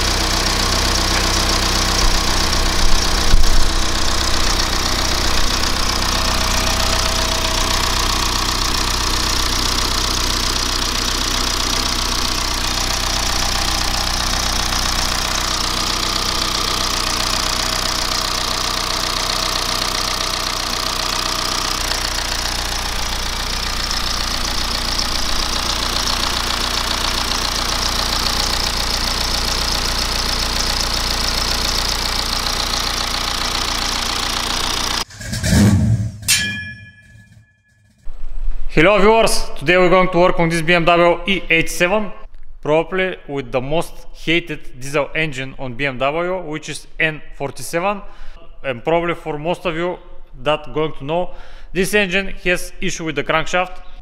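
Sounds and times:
diesel engine idling: 0:00.0 - 0:35.7.

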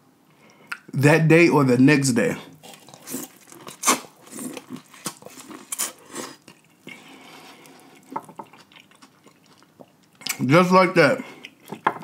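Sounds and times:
chewing with sharp crunches: 0:02.6 - 0:10.4, 0:11.2 - 0:12.0
person biting corn on the cob: 0:02.7 - 0:06.5.

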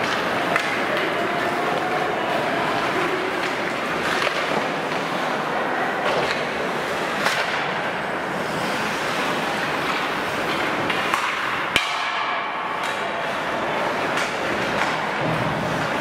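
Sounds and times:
hockey sticks and puck clacking: 0:00.0 - 0:16.0
skates hissing on ice: 0:08.2 - 0:11.2.

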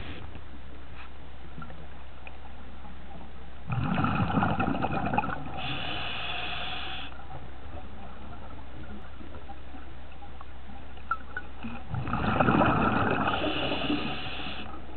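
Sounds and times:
steady hiss: 0:00.0 - 0:01.3, 0:05.6 - 0:07.3, 0:13.2 - 0:14.9
constant low hum: 0:00.0 - 0:14.9
underwater bubbles burbling: 0:03.7 - 0:06.2, 0:07.2 - 0:14.9.

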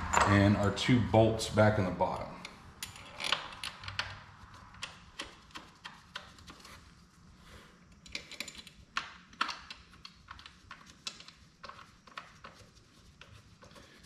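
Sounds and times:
bolts clicking and tapping: 0:08.0 - 0:13.8.

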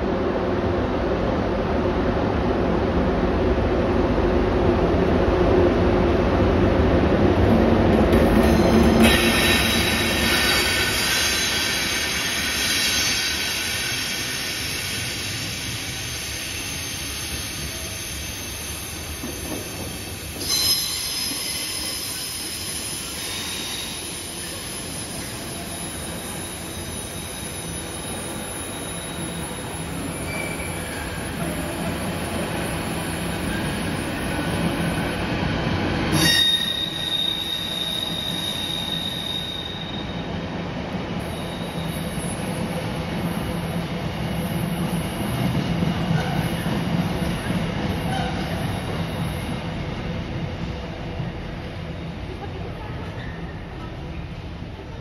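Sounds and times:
freight train rolling past: 0:00.0 - 0:55.0
wheel squeal: 0:30.1 - 0:31.3, 0:36.1 - 0:40.2.

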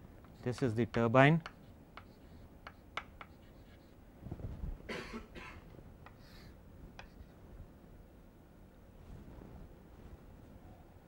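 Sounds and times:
sharp chalk taps: 0:00.2 - 0:03.9, 0:07.0 - 0:07.3
chalk scraping on blackboard: 0:00.3 - 0:04.0
person coughing: 0:04.9 - 0:05.6.

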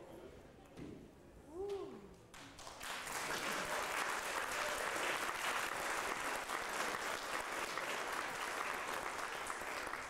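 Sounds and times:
audience applauding: 0:02.4 - 0:10.0.

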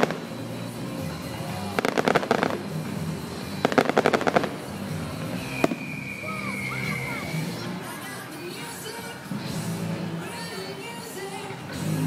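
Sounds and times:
fireworks crackling: 0:00.0 - 0:12.0
fireworks sharp bang: 0:03.6 - 0:04.7, 0:05.4 - 0:07.2.

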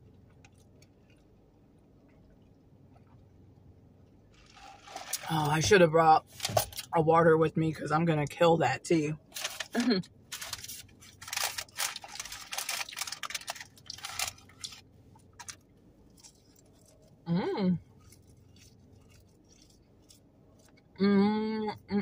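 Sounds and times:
chewing and crunching: 0:00.0 - 0:05.5, 0:09.2 - 0:20.9
person humming mm: 0:17.3 - 0:17.8, 0:21.0 - 0:22.0.

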